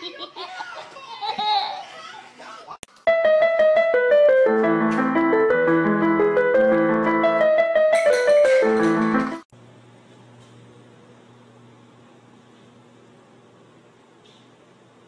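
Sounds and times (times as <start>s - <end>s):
electric keyboard melody: 3.0s - 9.5s.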